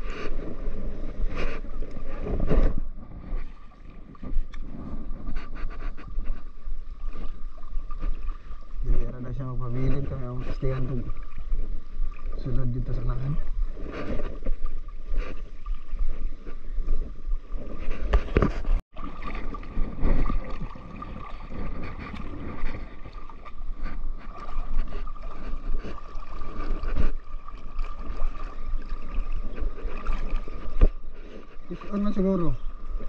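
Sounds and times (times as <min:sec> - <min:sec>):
wind rumble on microphone: 0:00.0 - 0:18.8, 0:19.4 - 0:33.0
small waves lapping and splashing: 0:00.0 - 0:33.0.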